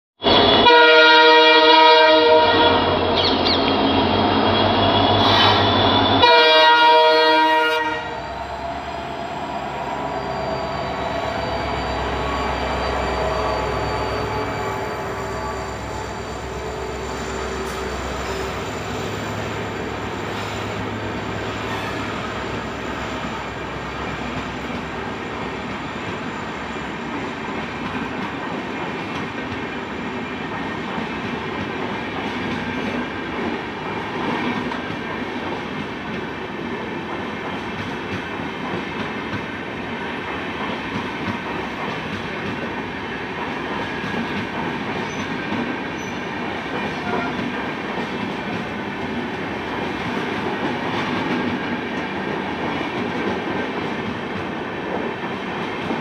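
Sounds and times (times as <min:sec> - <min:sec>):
train coaches rumbling and clattering: 0:00.2 - 0:56.0
locomotive horn blasts: 0:00.3 - 0:03.1, 0:05.0 - 0:09.2, 0:10.0 - 0:18.9.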